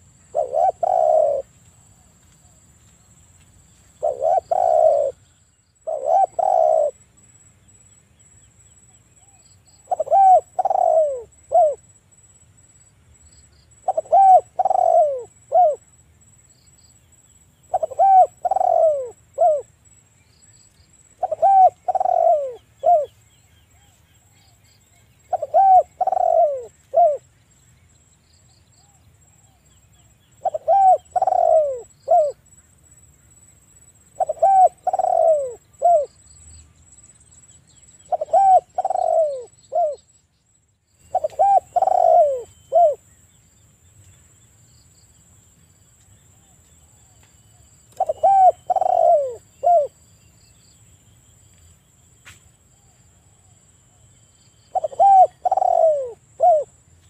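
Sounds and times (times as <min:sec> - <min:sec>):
dove cooing: 0:00.0 - 0:01.5, 0:04.0 - 0:05.2, 0:05.8 - 0:07.0, 0:09.2 - 0:11.8, 0:13.8 - 0:15.8, 0:17.7 - 0:19.7, 0:21.2 - 0:24.0, 0:25.3 - 0:27.3, 0:30.4 - 0:32.4, 0:34.1 - 0:36.1, 0:38.0 - 0:40.0, 0:41.1 - 0:43.0, 0:47.9 - 0:50.0, 0:54.7 - 0:56.8.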